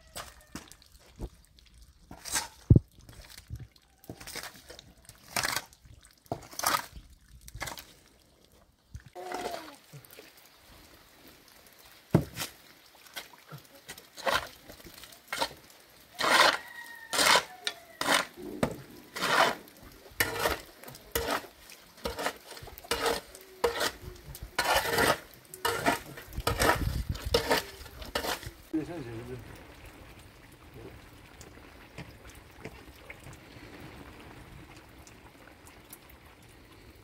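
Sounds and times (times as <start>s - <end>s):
shovel scraping wet mud: 2.1s - 3.5s, 4.2s - 8.0s, 12.2s - 28.7s.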